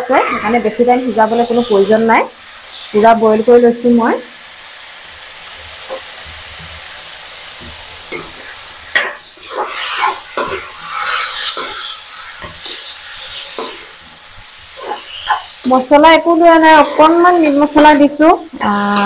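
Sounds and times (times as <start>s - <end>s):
vegetables sizzling in a wok: 0.0s - 19.0s
metal spoon scraping a pan: 1.1s - 3.1s, 8.1s - 19.0s.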